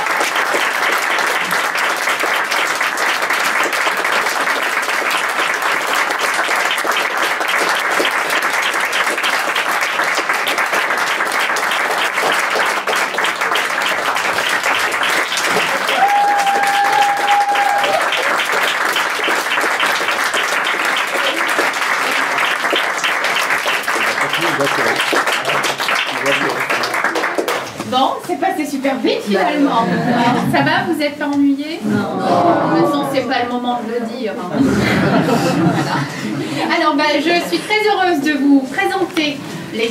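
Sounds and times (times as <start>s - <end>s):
audience applauding: 0.0s - 28.1s.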